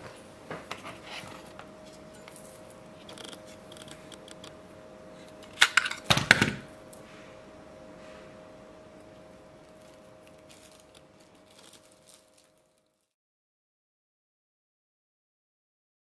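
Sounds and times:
faint steady hum: 0.0 - 13.2.

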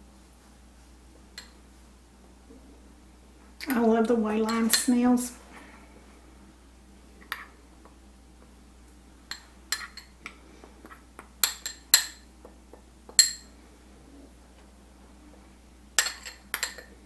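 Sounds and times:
metal spoon clinking on glass bowl: 13.1 - 13.5, 16.0 - 16.9.

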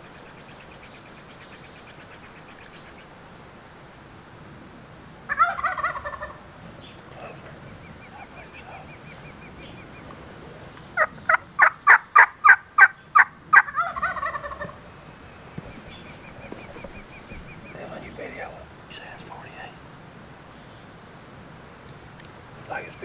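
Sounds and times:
turkey gobbling: 5.2 - 18.4
turkey yelps: 5.3 - 6.5, 11.0 - 14.8.

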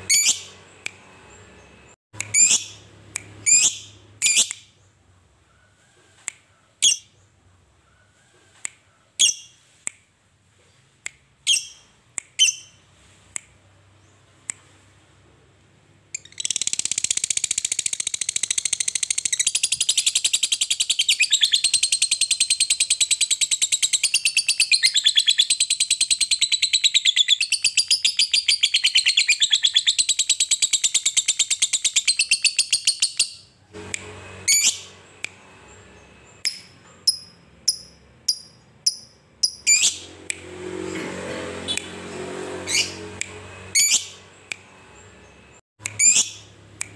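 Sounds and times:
lovebird chirping and trilling: 0.0 - 4.9, 6.8 - 7.2, 9.2 - 9.7, 11.4 - 12.8, 16.1 - 33.6, 34.5 - 35.0, 35.7 - 40.1, 42.7 - 43.1, 43.7 - 44.2, 45.8 - 46.9.

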